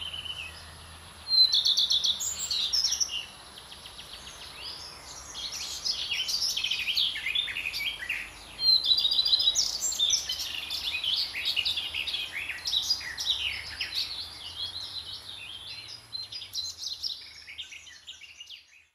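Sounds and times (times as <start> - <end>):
songbirds chirping and trilling: 0.0 - 18.9.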